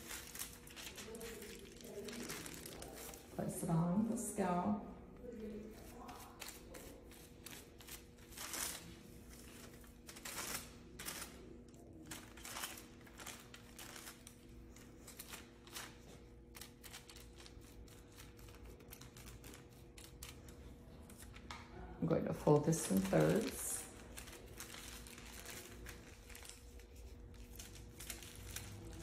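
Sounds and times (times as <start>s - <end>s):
foil crinkling: 0.0s - 3.6s, 5.2s - 21.5s, 22.3s - 29.0s.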